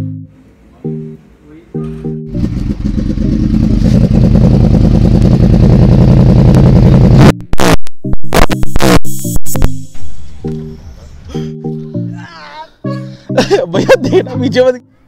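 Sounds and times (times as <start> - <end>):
loud engine rumble: 2.3 - 7.4.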